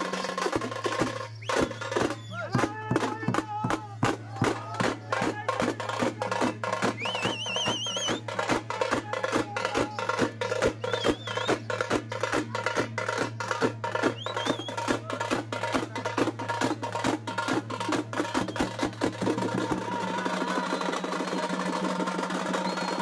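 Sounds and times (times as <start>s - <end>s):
procession drums beating fast: 0.0s - 23.0s
warbling whistle: 1.3s - 2.5s, 7.0s - 8.2s, 10.7s - 11.8s, 14.1s - 14.8s, 22.4s - 23.0s.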